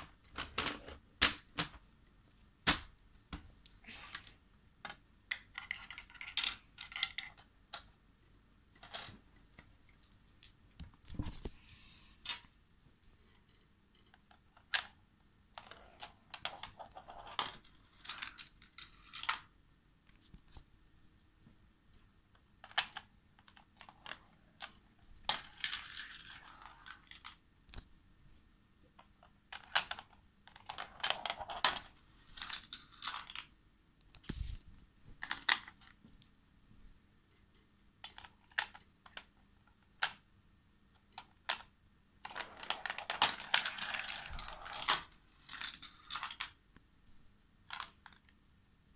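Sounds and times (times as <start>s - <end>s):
marbles rattling on a marble run: 42.3s - 46.5s.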